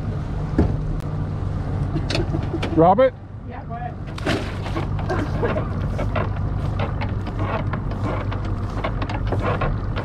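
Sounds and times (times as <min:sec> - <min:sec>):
outboard motor humming: 0:04.0 - 0:10.0.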